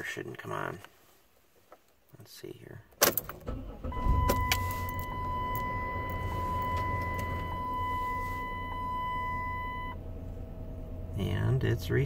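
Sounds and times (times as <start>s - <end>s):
ignition key click: 3.0s - 9.4s
car engine idling: 3.4s - 12.0s
seatbelt reminder chime: 4.0s - 10.0s.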